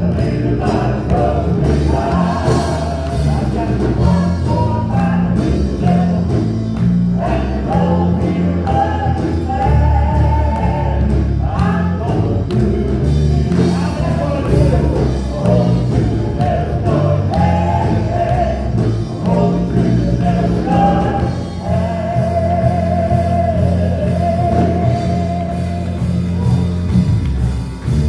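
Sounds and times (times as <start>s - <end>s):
gospel singing: 0.0s - 27.1s
instrumental accompaniment with bass: 0.0s - 28.0s.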